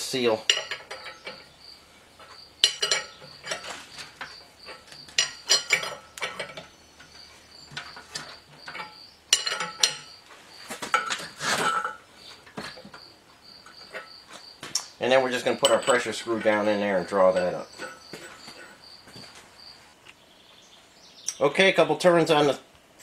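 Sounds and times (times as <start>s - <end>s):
metallic clinks and scrapes: 0.4s - 14.5s, 15.2s - 19.1s.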